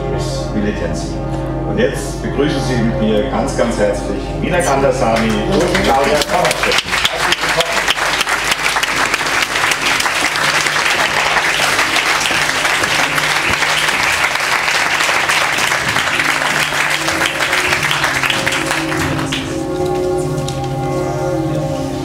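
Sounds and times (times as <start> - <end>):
audience applauding: 5.2 - 20.7.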